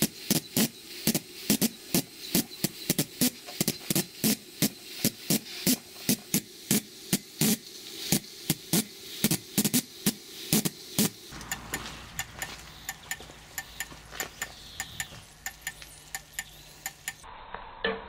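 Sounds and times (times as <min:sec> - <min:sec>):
faint steam hiss: 0:00.0 - 0:17.2
steam engine clicking: 0:00.0 - 0:17.2.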